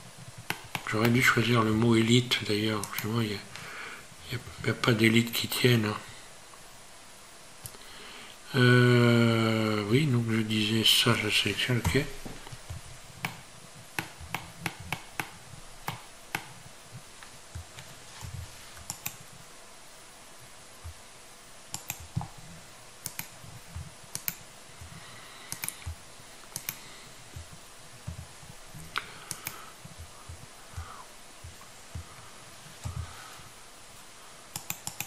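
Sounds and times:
faint steady hiss: 0:00.0 - 0:35.0
computer mouse clicks: 0:00.4 - 0:01.2, 0:02.8 - 0:03.2, 0:11.8 - 0:13.4, 0:14.0 - 0:16.6, 0:18.8 - 0:19.3, 0:21.7 - 0:22.4, 0:23.0 - 0:23.4, 0:24.1 - 0:24.5, 0:25.5 - 0:26.8, 0:28.9 - 0:30.0, 0:34.5 - 0:35.0
keyboard keys clicking: 0:21.7 - 0:22.3, 0:34.5 - 0:35.0.

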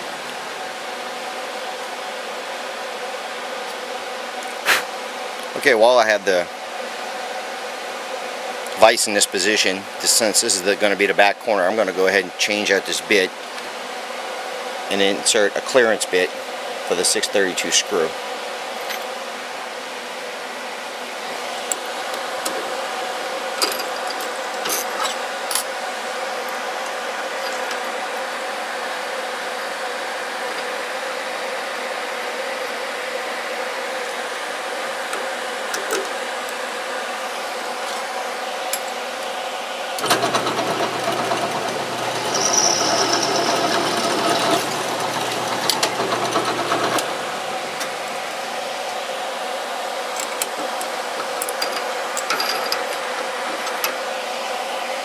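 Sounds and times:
blower fan humming: 0:00.0 - 0:55.0
drill press motor running: 0:40.0 - 0:48.0.

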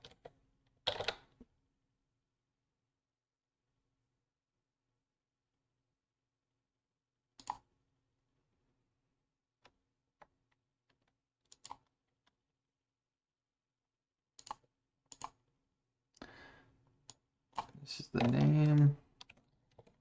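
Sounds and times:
computer mouse clicks: 0:07.4 - 0:07.7, 0:11.0 - 0:11.9, 0:14.4 - 0:15.4, 0:17.1 - 0:20.0.

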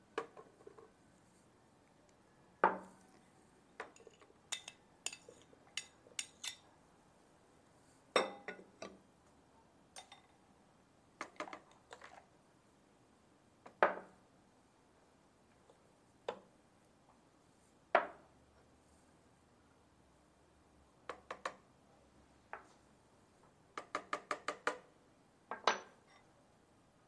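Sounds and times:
glass and ceramic bowls clinking: 0:08.2 - 0:08.6.

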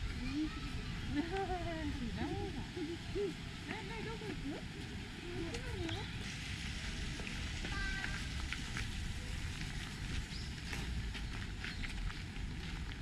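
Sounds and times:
footsteps crunching: 0:03.6 - 0:13.0.

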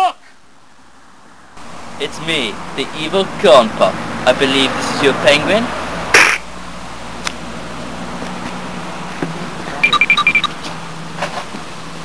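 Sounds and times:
short high electronic beeps: 0:09.8 - 0:10.6.

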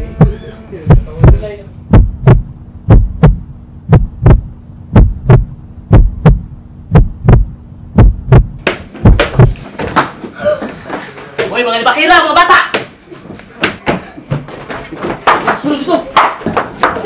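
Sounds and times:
heartbeat thumps: 0:00.0 - 0:10.0
steady low hum: 0:00.0 - 0:11.5.

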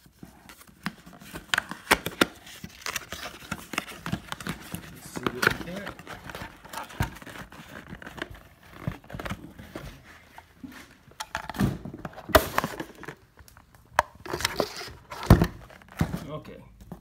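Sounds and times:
plastic packaging crinkling: 0:00.5 - 0:09.6.

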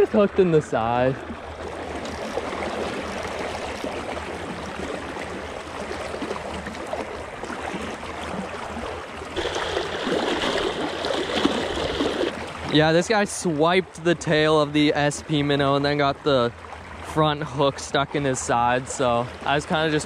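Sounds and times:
fish splashing: 0:01.2 - 0:12.7
fast water current rushing: 0:08.7 - 0:13.2.

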